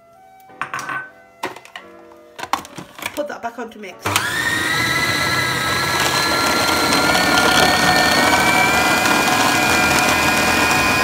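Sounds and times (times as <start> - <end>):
food processor motor whining: 4.0 - 11.0.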